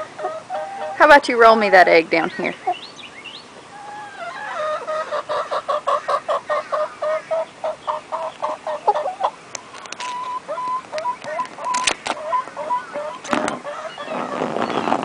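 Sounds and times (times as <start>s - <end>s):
hen clucking: 0.0s - 2.9s, 3.7s - 14.8s
sharp clicks: 9.5s - 12.2s.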